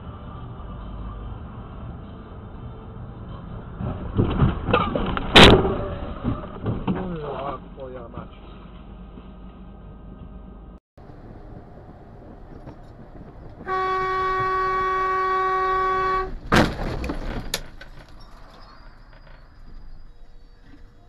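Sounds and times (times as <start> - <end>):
road noise: 0.0 - 21.0
knocks and clatter: 3.8 - 7.3, 16.3 - 20.0
loud crash of impact: 4.1 - 6.9, 16.4 - 17.6
vehicle horn blast: 13.6 - 16.4.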